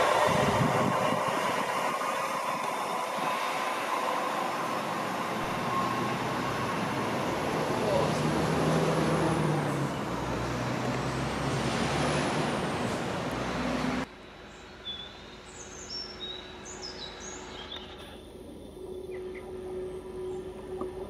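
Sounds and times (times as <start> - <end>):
high whine: 0.0 - 11.1, 16.6 - 21.0
train wheels rumbling on rail: 0.0 - 14.1
birds chirping: 12.6 - 21.0.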